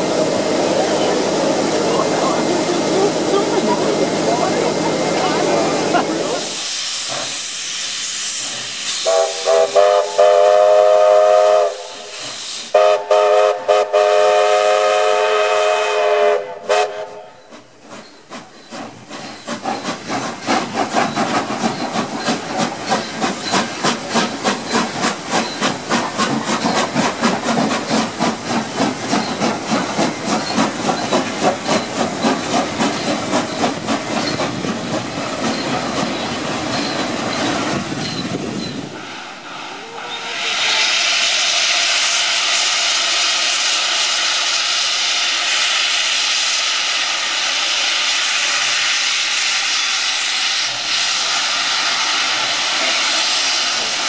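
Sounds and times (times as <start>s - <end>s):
steam hissing: 0.0s - 54.0s
steam locomotive chuffing: 0.0s - 54.0s
steam locomotive whistle: 8.9s - 17.5s, 39.9s - 46.8s.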